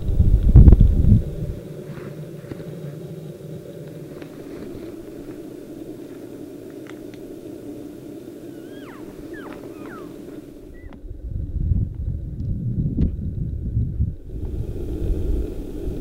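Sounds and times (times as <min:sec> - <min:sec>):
low outdoor rumble: 0:00.0 - 0:16.0
elk call mews: 0:08.5 - 0:11.0.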